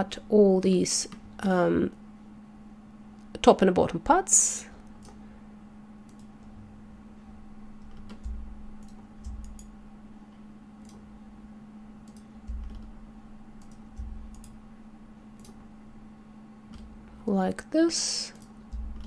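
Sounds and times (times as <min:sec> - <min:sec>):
steady low hum: 0:00.0 - 0:19.0
computer mouse clicks: 0:04.8 - 0:05.2, 0:06.0 - 0:06.6, 0:07.8 - 0:09.8, 0:10.8 - 0:11.0, 0:12.0 - 0:13.0, 0:13.6 - 0:14.6, 0:15.4 - 0:15.7, 0:16.7 - 0:16.9, 0:18.3 - 0:19.0
dull low thumps: 0:08.2 - 0:09.4, 0:12.4 - 0:13.1, 0:13.9 - 0:14.4, 0:18.7 - 0:19.0.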